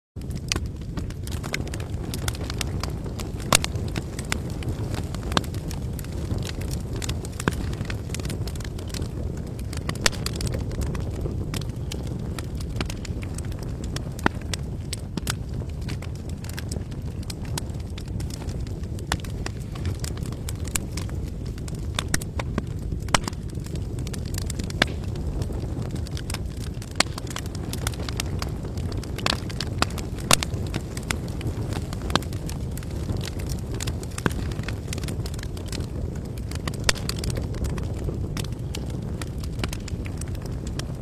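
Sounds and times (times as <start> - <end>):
campfire crackling: 0.2 - 41.0.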